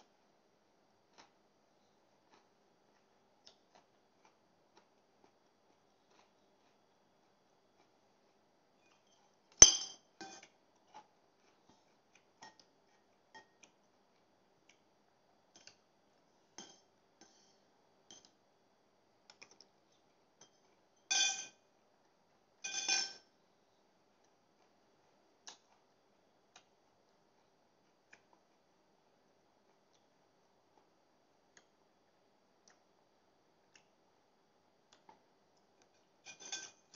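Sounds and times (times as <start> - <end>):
fork and spoon clinking on plate: 8.9 - 10.5, 20.4 - 21.6, 22.6 - 23.3, 36.3 - 36.9.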